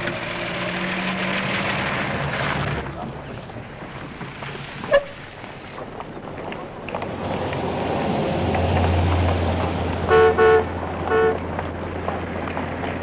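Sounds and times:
car horn tooting: 10.1 - 11.4.

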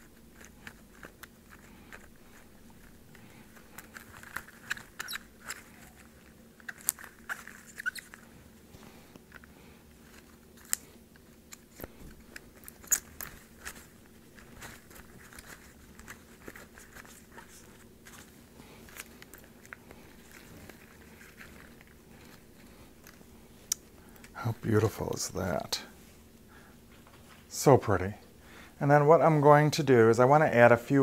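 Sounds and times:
dried grass stems crackling: 11.6 - 25.2.

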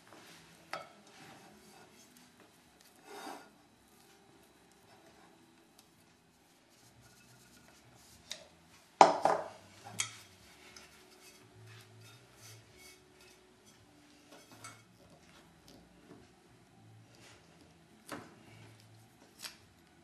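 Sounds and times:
dishes and utensils clattering: 9.0 - 15.3.

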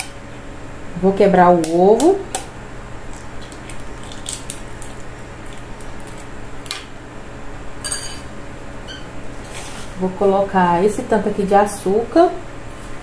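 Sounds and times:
low steady hum: 0.0 - 13.0
dishes and utensils clicking: 7.8 - 8.3
ringing clink of dish: 7.8 - 8.3.

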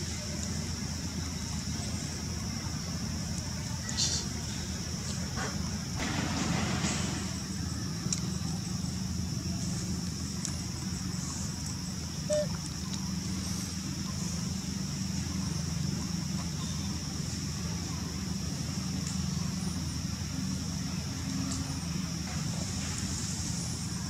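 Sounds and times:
high-pitched hiss: 0.0 - 24.0
brief squeak: 12.3 - 12.5.

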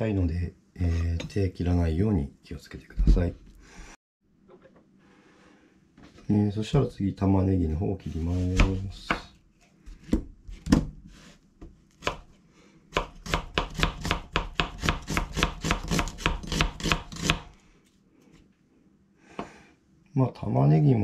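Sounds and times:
knife chopping onion on board: 8.5 - 9.3, 12.0 - 12.3, 12.9 - 17.5.

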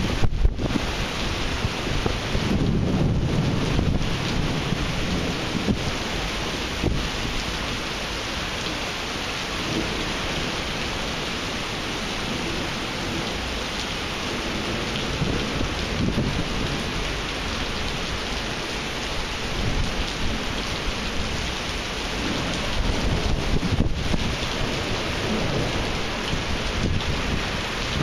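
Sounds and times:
thunder rumbling: 0.0 - 7.7, 14.2 - 18.5, 19.5 - 28.0
heavy rain on pavement: 0.0 - 28.0.

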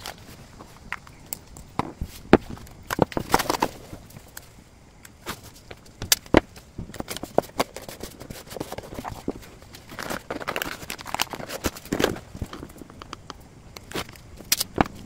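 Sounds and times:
paper rustling: 2.0 - 4.4, 6.9 - 12.9.

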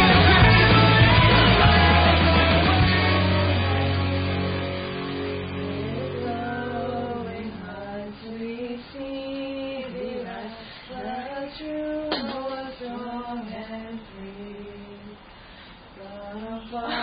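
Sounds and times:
woman singing slow melody: 5.8 - 15.3, 16.0 - 17.0.

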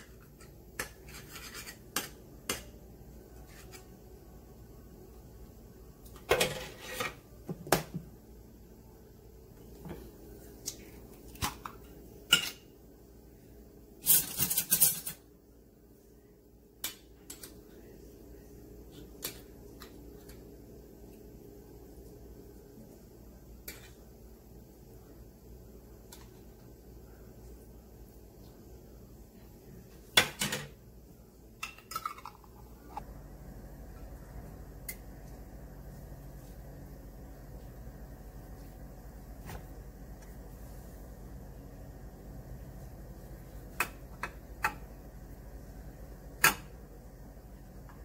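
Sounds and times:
dishes clinking and clattering: 31.6 - 32.5.

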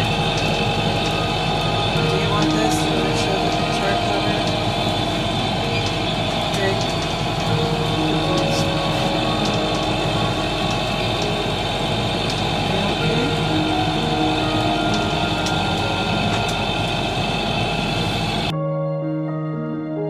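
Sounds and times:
boat engine droning: 0.0 - 18.5
sea noise: 0.0 - 18.5.

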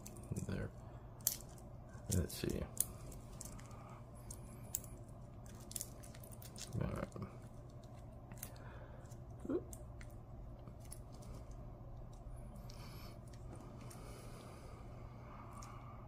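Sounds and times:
short low vocal sound: 9.4 - 9.7.

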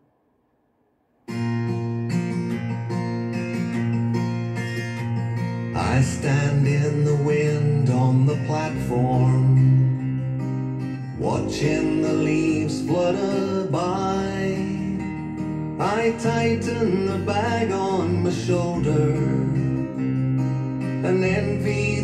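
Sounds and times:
plucked guitar with sliding notes: 1.3 - 22.0.

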